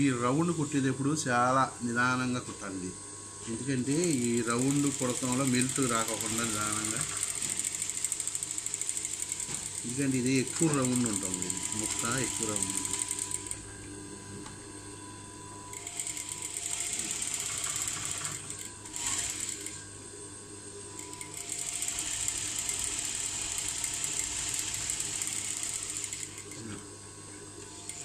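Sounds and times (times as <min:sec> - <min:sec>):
sewing machine stitching: 0:04.1 - 0:13.6, 0:15.7 - 0:19.8, 0:21.0 - 0:26.7.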